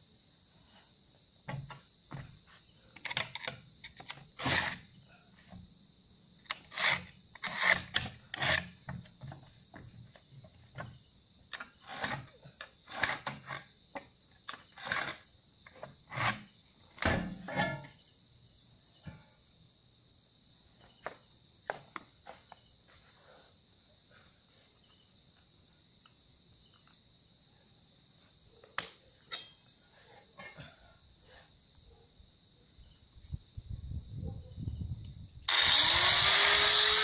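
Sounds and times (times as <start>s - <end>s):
crickets chirring: 0.0s - 37.0s
scrapes and knocks on hard floor: 1.5s - 2.4s.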